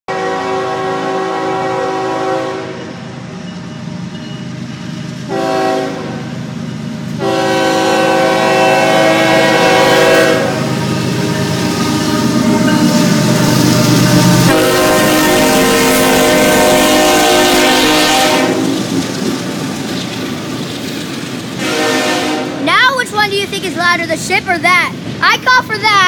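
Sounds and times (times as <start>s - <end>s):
locomotive air horn: 0.1s - 3.0s, 5.3s - 6.2s, 7.2s - 18.8s, 21.6s - 22.6s
locomotive engine: 0.1s - 26.0s
train wheels on rails: 0.1s - 26.0s.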